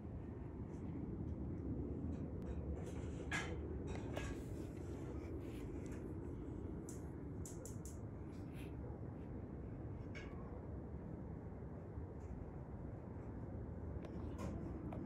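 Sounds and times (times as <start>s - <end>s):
jet engines rumbling overhead: 0.0s - 15.0s
faint scratches and clicks: 2.0s - 8.9s.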